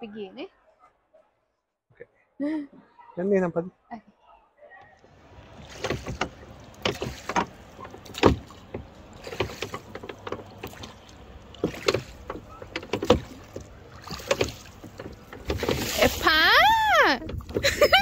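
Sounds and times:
wooden oars knocking in rowlocks: 5.1s - 18.0s.

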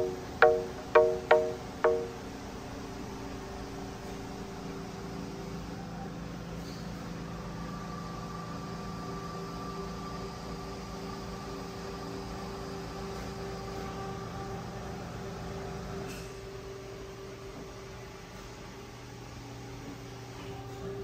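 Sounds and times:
faint high steady tone: 0.0s - 4.8s
machinery hum and whir: 0.0s - 21.0s.

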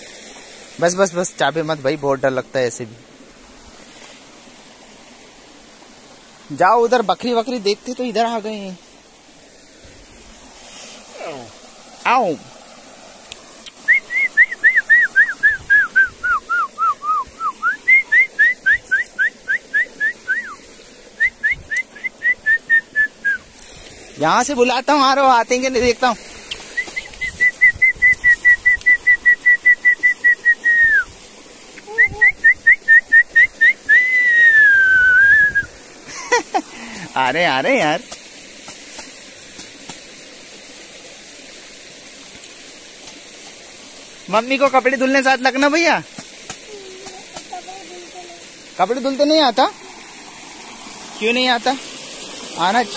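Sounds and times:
stream running over rocks: 0.0s - 52.9s
person whistling short notes: 13.8s - 20.6s, 26.8s - 31.1s, 31.9s - 35.7s
splashes of hand washing: 26.2s - 28.6s.

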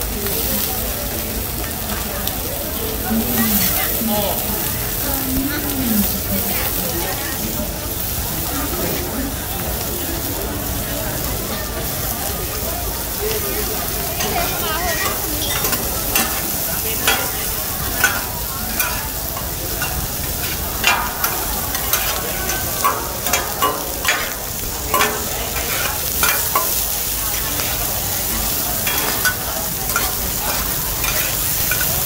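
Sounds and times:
food sizzling on griddle: 0.0s - 32.0s
metal spatulas scraping griddle: 14.2s - 27.7s, 28.3s - 32.0s.

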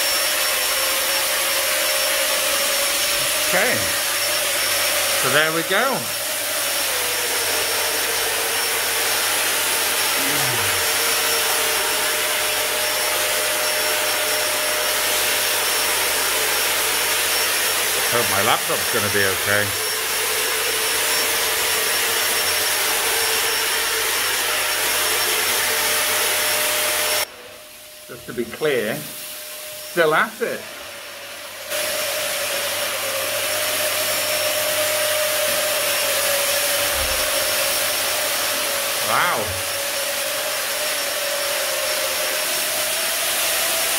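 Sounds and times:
motor whine: 0.0s - 28.1s, 31.7s - 43.8s
disinfectant fogger running: 0.0s - 43.9s
sprayer mist hissing: 1.0s - 27.2s.

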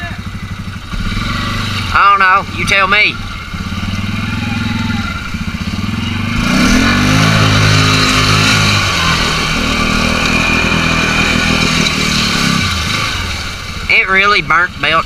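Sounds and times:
atv engine revving: 0.0s - 15.0s
splashing through muddy water: 3.2s - 13.9s.

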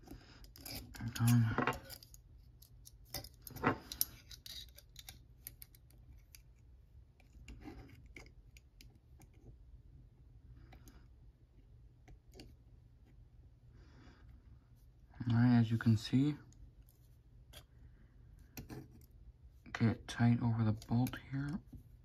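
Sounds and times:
caliper jaw metallic clicks and scrapes: 0.4s - 6.5s.

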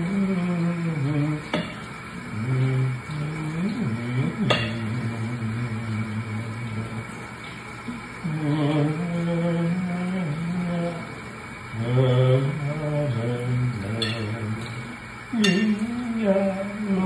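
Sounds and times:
man humming: 0.0s - 7.2s, 8.2s - 11.2s, 11.8s - 17.0s
running tap water hiss: 0.0s - 17.0s
dishes clinking: 1.5s - 1.9s, 4.4s - 4.9s, 14.0s - 14.4s, 15.4s - 16.0s.

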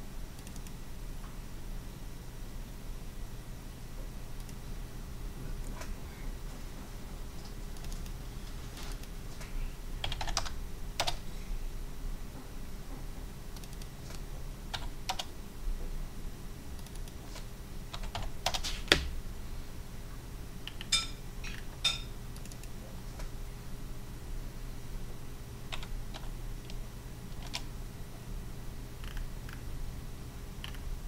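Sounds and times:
low steady hum: 0.0s - 31.0s
computer keyboard keystrokes: 0.4s - 0.8s, 7.7s - 8.2s, 10.0s - 11.2s, 13.5s - 15.3s, 16.8s - 19.1s, 20.6s - 21.7s, 22.4s - 22.8s, 25.7s - 27.7s, 30.6s - 30.8s.

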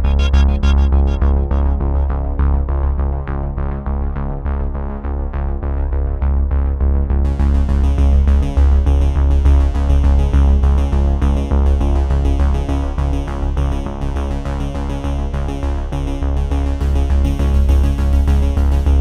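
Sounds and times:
music with beat and bass: 0.0s - 3.4s, 7.3s - 19.0s.

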